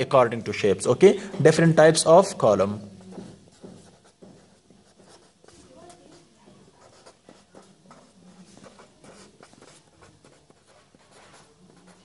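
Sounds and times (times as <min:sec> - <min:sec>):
pencil scratching on paper: 0:03.0 - 0:12.0.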